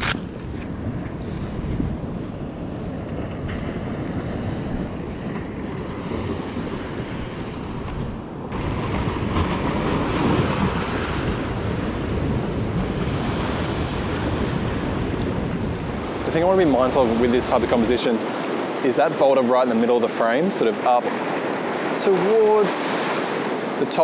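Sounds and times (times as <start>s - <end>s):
wind rumbling on microphone: 0.0s - 19.1s
surf washing over rocks: 1.0s - 24.0s.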